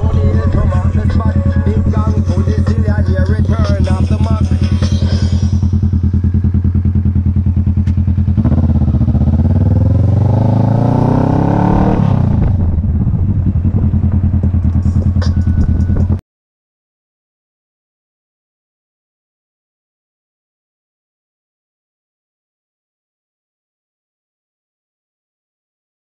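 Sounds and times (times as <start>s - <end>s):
motorcycle engine revving: 0.0s - 16.2s.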